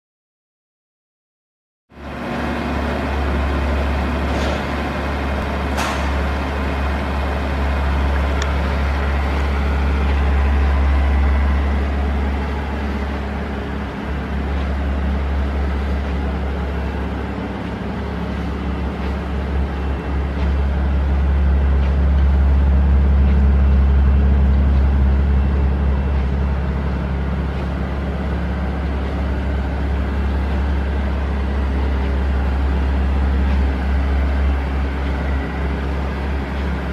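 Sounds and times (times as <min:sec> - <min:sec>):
car engine idling: 0:02.0 - 0:36.9.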